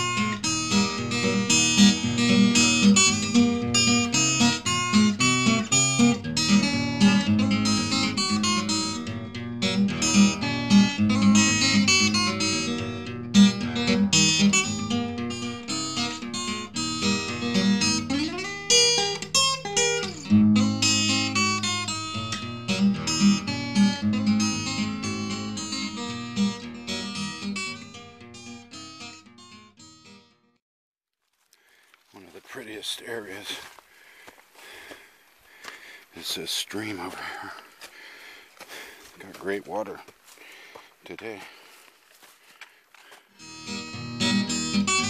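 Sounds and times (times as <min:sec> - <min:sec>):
acoustic guitar music: 0:00.0 - 0:30.6, 0:43.2 - 0:45.0.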